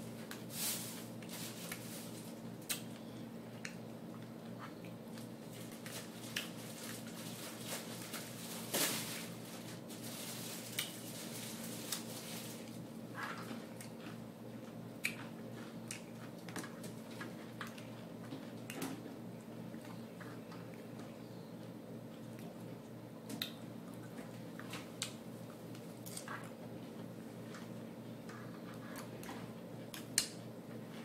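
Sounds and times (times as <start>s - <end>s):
steady low hum: 0.0s - 31.0s
wet chewing: 13.2s - 18.0s.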